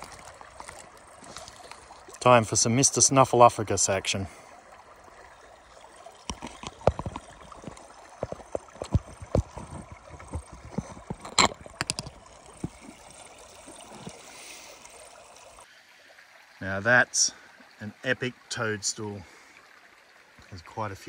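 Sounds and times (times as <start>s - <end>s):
clicks and small knocks: 6.2s - 12.8s
plastic bottle sucking water: 6.2s - 15.1s.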